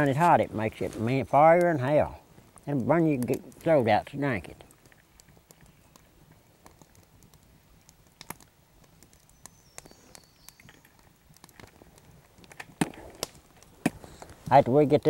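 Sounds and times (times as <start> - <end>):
small clicks and ticks: 2.4 - 15.0
faint high chirp: 9.3 - 10.9.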